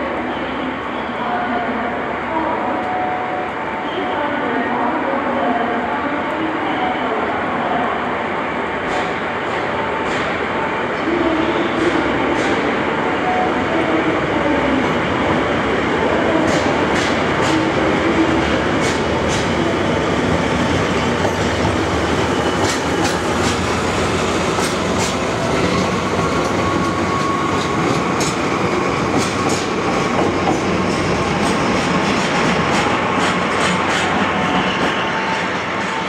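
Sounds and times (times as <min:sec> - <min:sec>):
diesel locomotive rumbling: 0:14.0 - 0:36.0.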